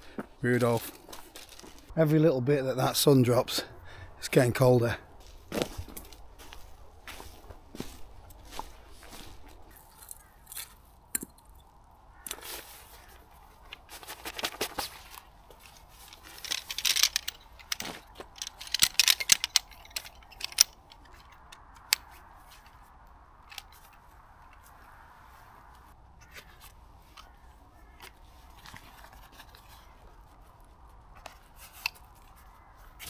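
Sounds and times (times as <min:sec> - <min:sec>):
metal poles clicking: 0:16.0 - 0:22.7.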